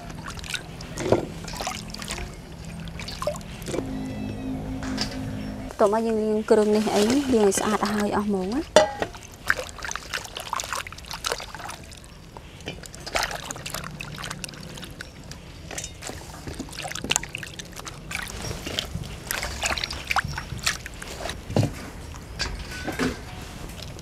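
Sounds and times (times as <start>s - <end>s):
small splashes and drips: 0.0s - 3.7s, 8.7s - 21.4s
water sloshing and trickling: 0.0s - 3.9s, 5.8s - 24.0s.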